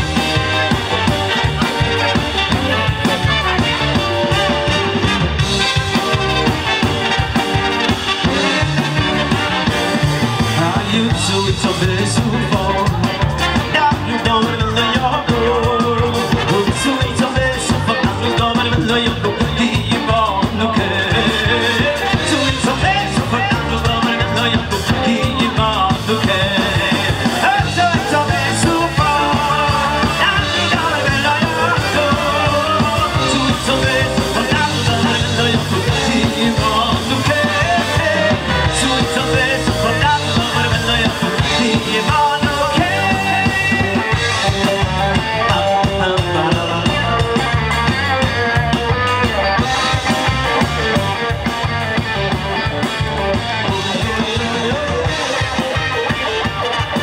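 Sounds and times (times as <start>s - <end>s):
drum kit: 0.0s - 57.0s
keyboard: 0.0s - 57.0s
trumpet and saxophone horns: 0.0s - 57.0s
man singing into a microphone: 8.3s - 51.0s, 53.3s - 57.0s.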